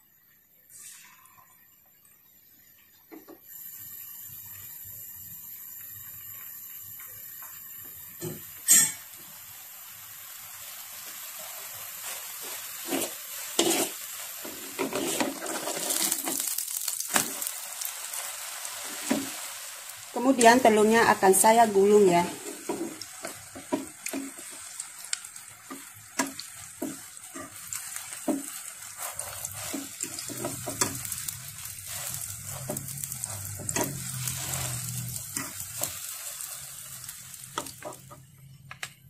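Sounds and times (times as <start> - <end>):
egg sizzling in oil: 0.0 - 38.6
wooden spatula scraping pan: 12.0 - 16.4, 25.7 - 36.5.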